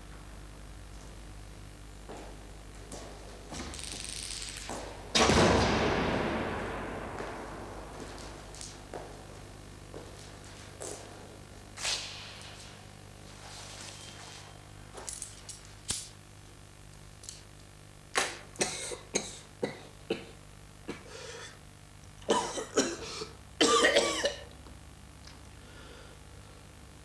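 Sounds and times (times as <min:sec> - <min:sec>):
man coughing: 0:18.2 - 0:21.6, 0:22.2 - 0:24.5.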